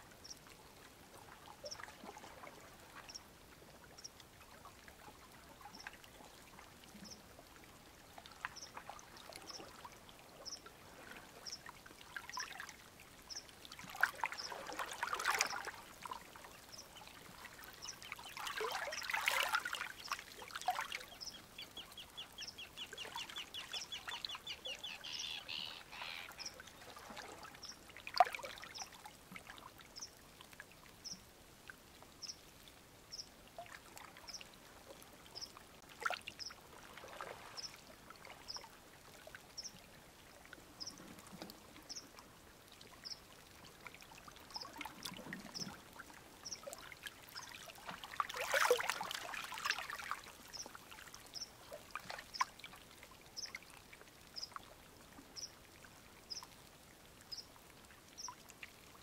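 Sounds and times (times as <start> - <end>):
pond water splashing and trickling: 0.0 - 59.0
bird chirping: 21.1 - 26.6.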